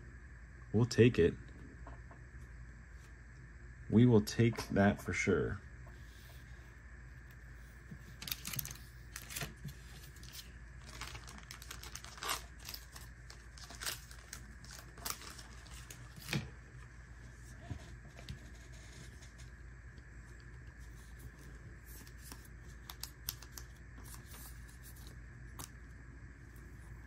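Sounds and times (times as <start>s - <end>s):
plastic sleeve crinkling: 8.0s - 19.5s.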